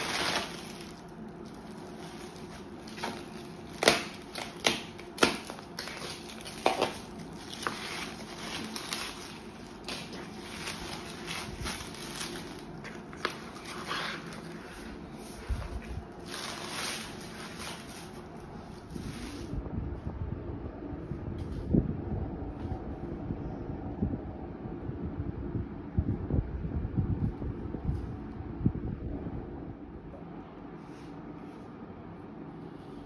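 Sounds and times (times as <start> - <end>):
cardboard rustling: 0.0 - 19.6
plastic wrap crinkling: 0.0 - 19.6.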